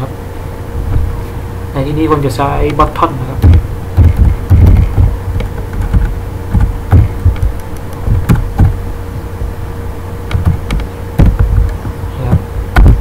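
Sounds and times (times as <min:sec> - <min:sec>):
steady low hum: 0:00.0 - 0:13.0
computer keyboard keystrokes: 0:03.4 - 0:08.7, 0:10.3 - 0:11.9.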